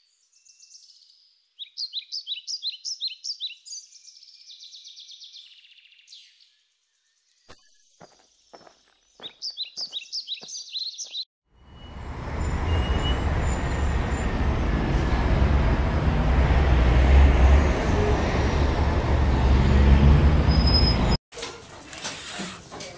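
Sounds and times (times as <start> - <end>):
bird chirping: 0.0 - 14.2
car traffic noise: 11.5 - 21.2.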